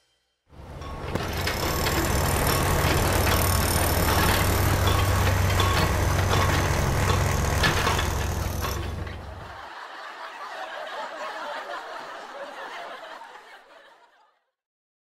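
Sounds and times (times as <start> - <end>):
short clinks: 0.6 - 9.4
low rumbling drone: 0.6 - 9.5.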